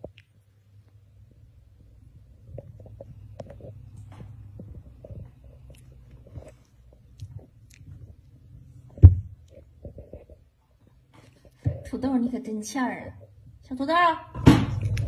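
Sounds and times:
puppies biting and mouthing: 2.5 - 8.5.

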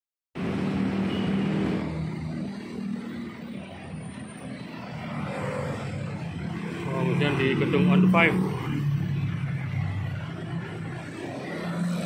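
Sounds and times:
street traffic: 0.4 - 12.0.

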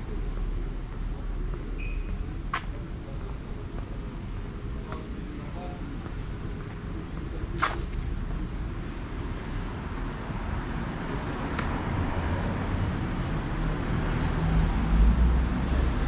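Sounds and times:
passing motor vehicles rumbling: 6.2 - 16.0.

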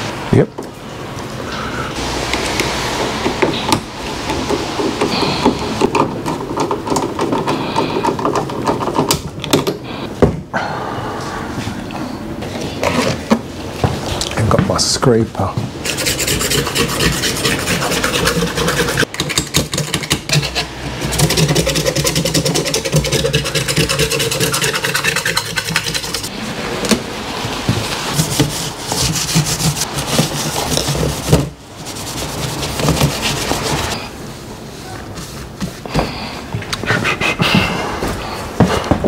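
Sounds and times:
hand scraper scratching worktop: 15.8 - 26.3, 27.8 - 34.0, 36.7 - 38.8.

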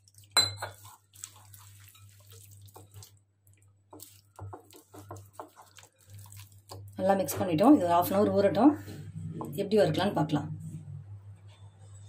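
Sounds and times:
hand squelching wet fish: 0.0 - 6.9
low steady hum: 0.1 - 12.0.

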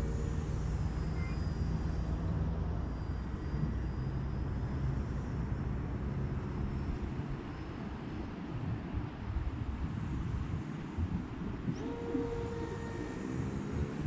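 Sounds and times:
model plane motor drone: 0.0 - 14.0.

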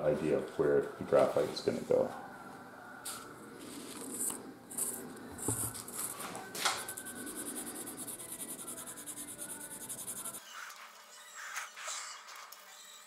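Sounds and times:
pencil scribbling on wood: 6.8 - 10.4.

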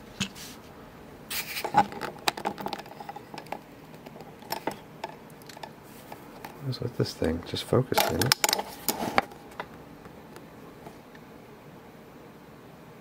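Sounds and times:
lock parts clicking and tapping: 1.7 - 5.8, 7.2 - 9.8.

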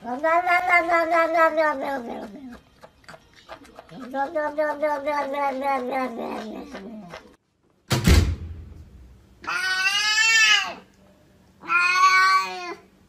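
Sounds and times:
cat meowing: 0.0 - 2.5, 9.4 - 10.8, 11.6 - 12.9
sharp thump: 7.9 - 9.2.

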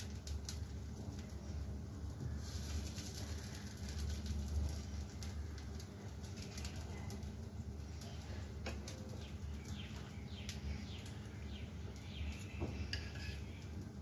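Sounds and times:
birds chirping: 7.8 - 13.8.

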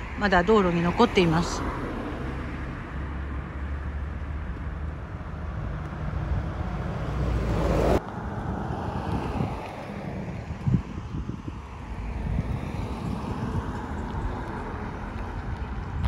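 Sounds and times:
road traffic: 0.0 - 16.0
wind buffeting microphone: 4.3 - 16.0.

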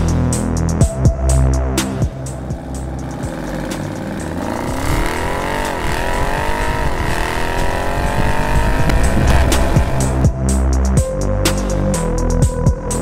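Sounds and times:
car engine accelerating hard: 1.8 - 10.5.

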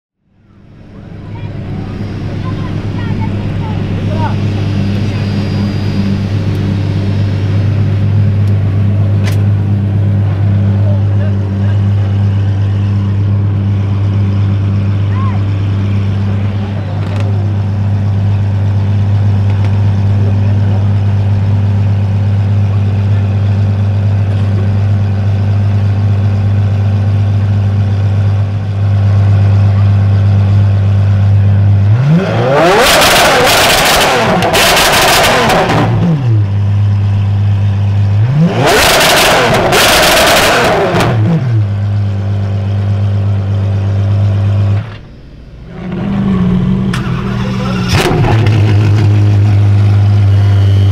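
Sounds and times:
car engine idling and revving: 0.2 - 50.9.

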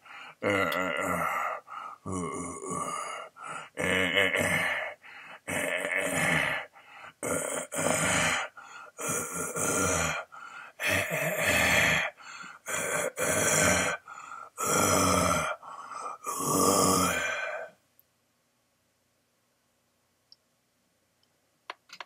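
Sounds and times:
man grunting and groaning: 0.4 - 17.8.

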